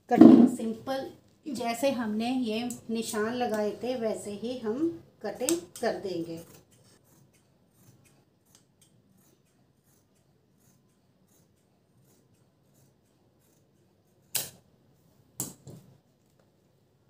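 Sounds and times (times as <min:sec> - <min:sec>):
scissors snipping cloth: 0:05.3 - 0:14.6.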